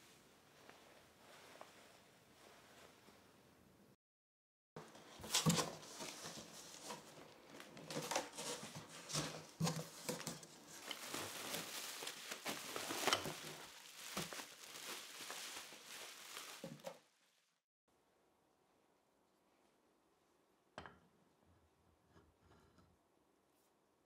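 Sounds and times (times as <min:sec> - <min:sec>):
cardboard and plastic wrapping rustling: 0:04.8 - 0:17.5.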